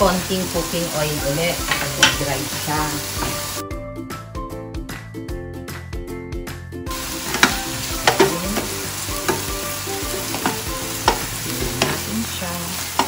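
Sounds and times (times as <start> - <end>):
food sizzling in oil: 0.0 - 3.6, 6.9 - 13.0.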